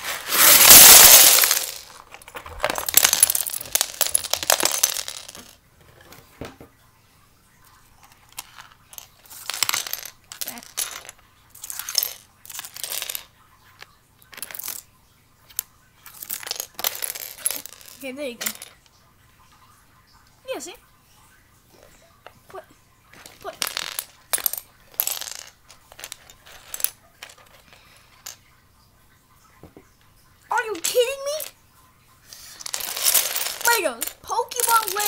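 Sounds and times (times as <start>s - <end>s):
plastic bricks clattering on floor: 0.0s - 6.7s, 8.0s - 14.9s, 15.5s - 18.8s, 21.8s - 28.4s, 30.5s - 31.6s, 32.3s - 35.0s
bricks clicking and rattling: 0.1s - 6.6s, 23.2s - 27.7s, 32.6s - 35.0s.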